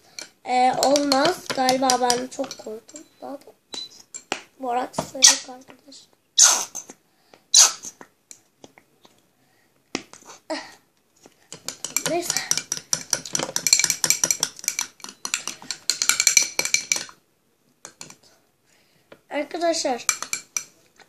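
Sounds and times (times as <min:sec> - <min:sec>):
metal spoon clinking against glass bowl: 0:11.8 - 0:17.1.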